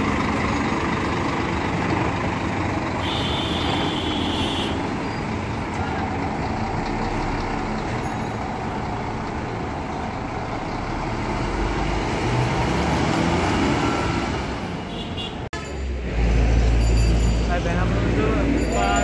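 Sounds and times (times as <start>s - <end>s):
bus diesel engine running: 0.0s - 19.0s.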